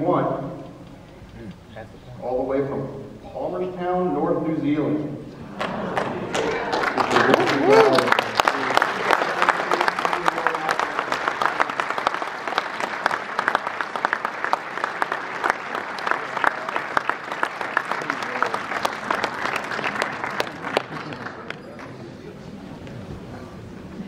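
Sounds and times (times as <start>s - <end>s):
audience applauding: 5.6s - 22.1s.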